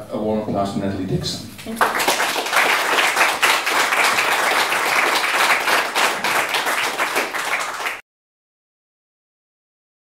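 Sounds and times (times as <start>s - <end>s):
audience applauding: 1.7s - 8.0s.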